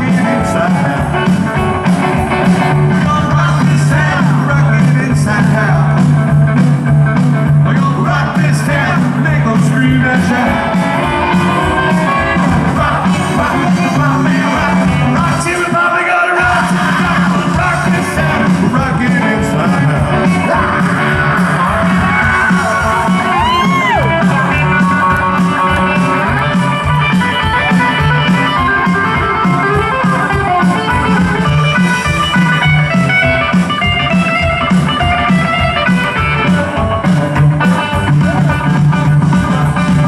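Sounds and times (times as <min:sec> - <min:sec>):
electric guitar: 0:00.0 - 0:40.0
steady drum beat: 0:00.0 - 0:40.0
slapped upright bass: 0:16.4 - 0:40.0.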